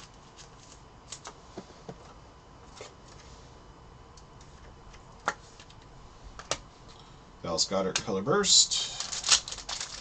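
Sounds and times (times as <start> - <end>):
cards rustling: 0.0 - 1.4, 8.8 - 10.0.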